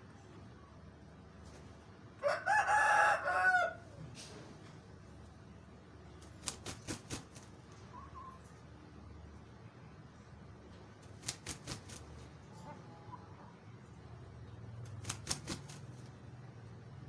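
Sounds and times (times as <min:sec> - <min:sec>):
rooster crowing: 0:02.2 - 0:04.0
soft chicken cluck: 0:07.6 - 0:09.2, 0:12.3 - 0:14.3.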